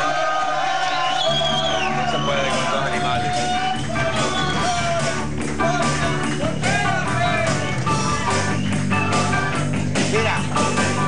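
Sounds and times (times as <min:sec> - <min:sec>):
music with steady beat: 0:01.4 - 0:11.0.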